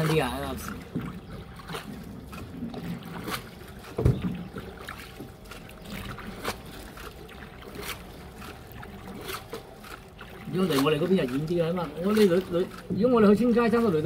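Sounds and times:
boat water noise: 0.0s - 14.0s
knocks on boat: 2.7s - 5.3s.

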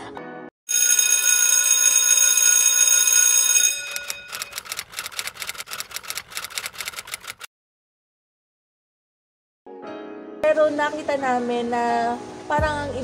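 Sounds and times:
bell-like ring: 0.7s - 4.6s.

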